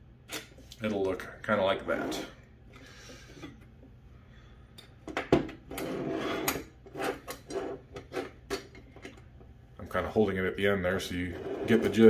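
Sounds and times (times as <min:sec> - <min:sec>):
drum pedal scraping on table: 0:05.7 - 0:08.4, 0:11.3 - 0:12.0.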